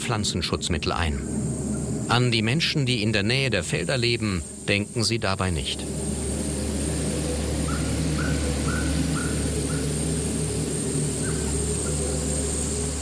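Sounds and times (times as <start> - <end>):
sprayer engine humming: 0.7 - 13.0
bird chirping: 5.8 - 13.0.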